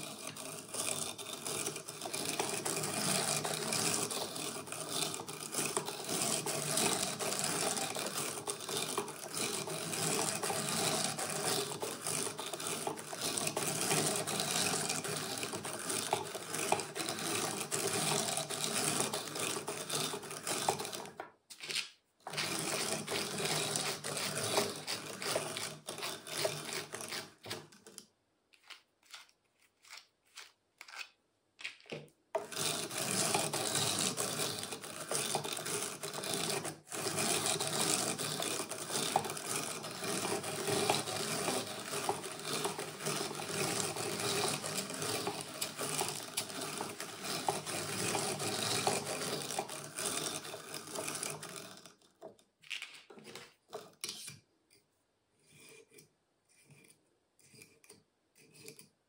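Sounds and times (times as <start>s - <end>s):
drum carder whirring: 37.6s - 51.6s.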